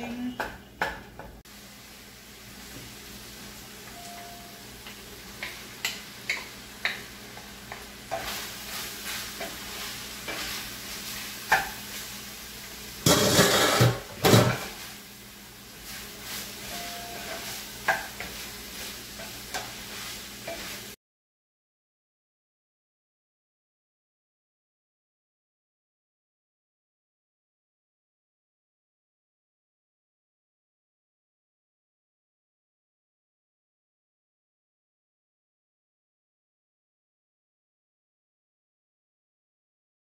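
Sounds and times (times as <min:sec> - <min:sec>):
meat sizzling in a pan: 0:01.5 - 0:21.0
wooden spoon tapping a pan: 0:04.8 - 0:08.3, 0:11.5 - 0:11.8, 0:17.1 - 0:18.4.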